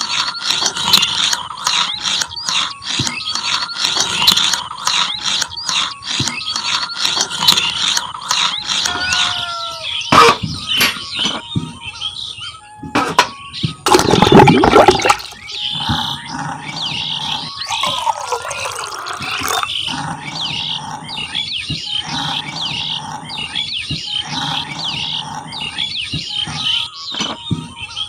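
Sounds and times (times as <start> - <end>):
birds chirping: 0.0 - 28.0
gulping water drinking: 13.9 - 23.6.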